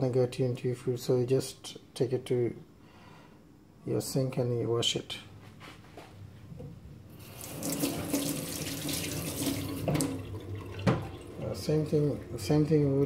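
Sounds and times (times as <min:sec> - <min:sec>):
tap water running into sink: 0:07.2 - 0:12.4.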